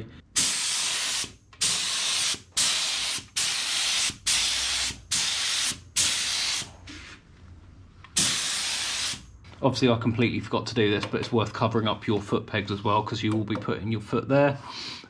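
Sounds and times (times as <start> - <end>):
spray gun hissing bursts: 0.4 - 7.0, 8.2 - 9.3.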